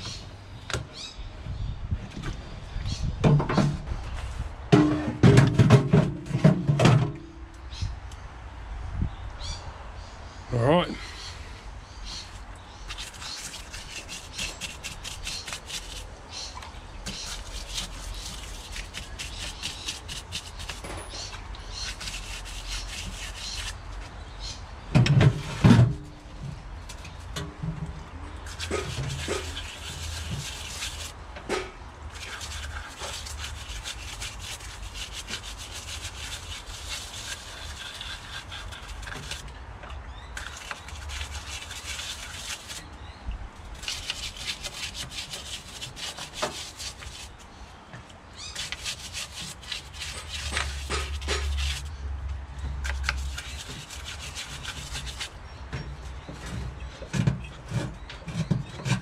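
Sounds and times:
scratchy scrubbing strokes: 0:12.2 - 0:24.0, 0:28.4 - 0:31.2, 0:32.1 - 0:39.5, 0:40.4 - 0:42.9, 0:43.8 - 0:47.6, 0:48.5 - 0:52.0, 0:52.8 - 0:55.4.

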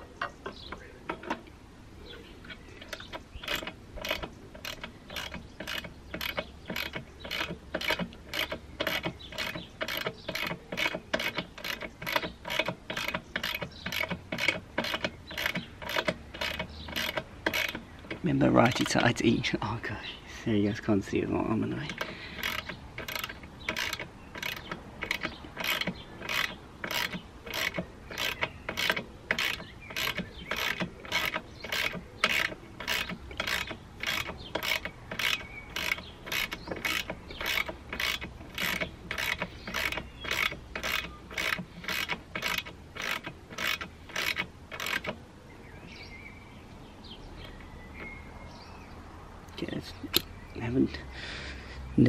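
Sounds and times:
ratchet wrench clicking: 0:02.5 - 0:19.0, 0:21.8 - 0:45.2.

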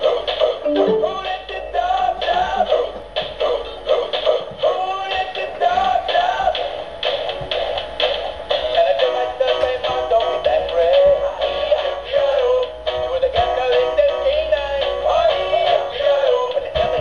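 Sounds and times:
synthetic singing voice over beat: 0:00.6 - 0:01.5.

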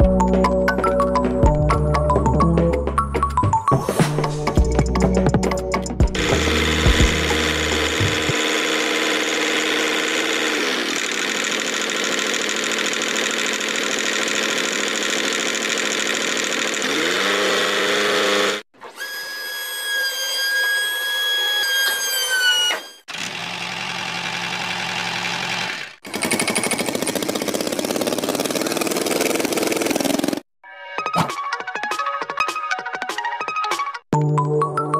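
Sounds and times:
high motor whine: 0:06.2 - 0:10.6
small motor buzzing: 0:06.2 - 0:30.4.

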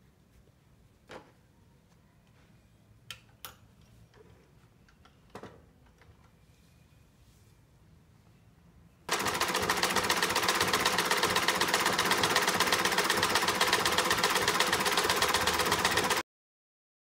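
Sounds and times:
sewing machine stitching: 0:09.1 - 0:16.2.

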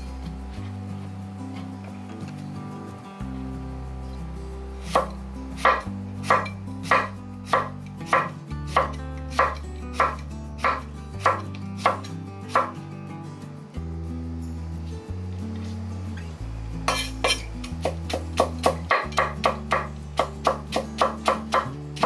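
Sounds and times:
knife chopping on wooden board: 0:04.9 - 0:12.8, 0:16.9 - 0:21.8.

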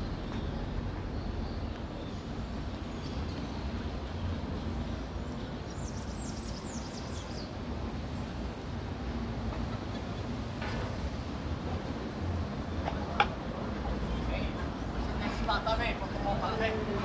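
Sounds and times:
bird chirping: 0:00.0 - 0:07.5
traffic rumble: 0:00.0 - 0:17.0.

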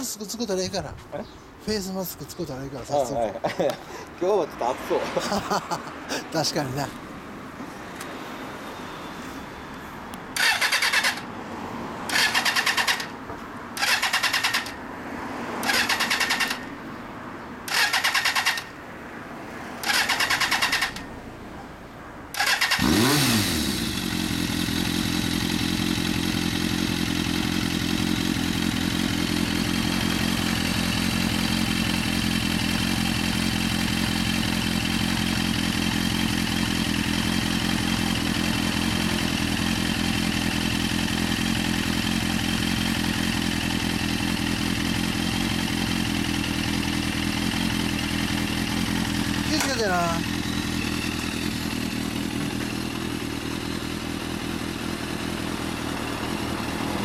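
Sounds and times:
motorcycle engine cranking: 0:10.4 - 0:11.3, 0:12.1 - 0:13.1, 0:13.8 - 0:14.8, 0:15.6 - 0:16.7, 0:17.7 - 0:18.7, 0:19.8 - 0:21.1, 0:22.3 - 0:54.3
motorcycle engine idling: 0:22.3 - 0:57.0.

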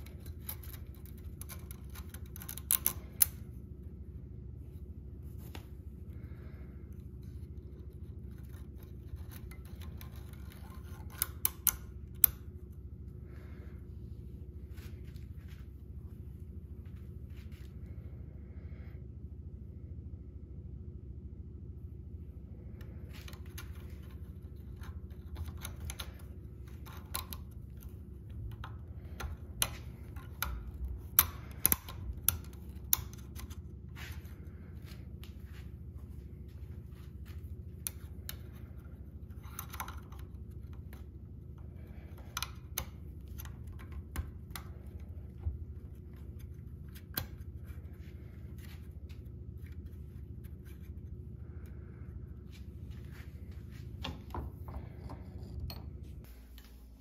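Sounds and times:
metallic clicks of tools: 0:00.0 - 0:03.4, 0:28.5 - 0:33.6
steady low hum: 0:00.0 - 0:57.0.

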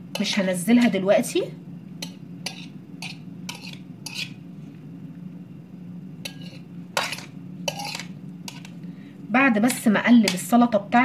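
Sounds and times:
steady low hum: 0:00.0 - 0:11.0
metal spoon scraping ceramic plate: 0:02.0 - 0:04.4, 0:06.2 - 0:08.8.

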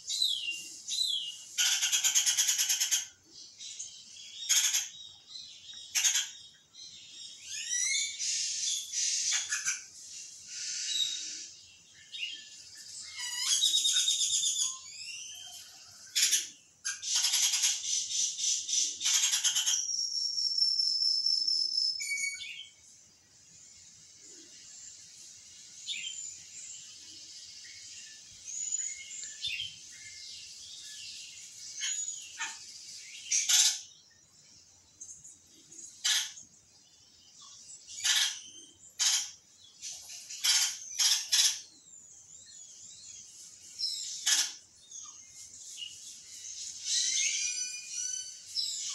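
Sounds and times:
birds chirping and whistling: 0:00.0 - 0:22.8, 0:25.7 - 0:48.9
long held bird whistle: 0:13.1 - 0:15.6, 0:17.9 - 0:22.8, 0:46.8 - 0:48.9.

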